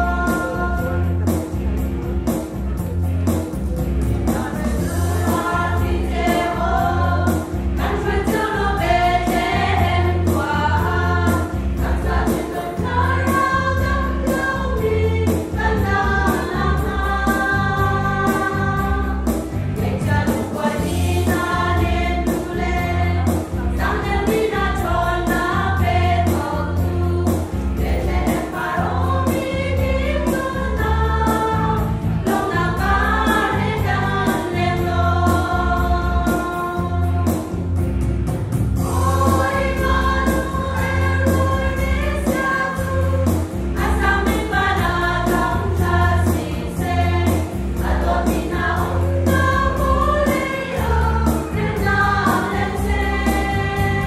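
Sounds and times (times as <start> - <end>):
women's choir singing: 0.0 - 1.0, 4.3 - 37.4, 38.8 - 54.0
instrumental backing with bass and beat: 0.0 - 54.0.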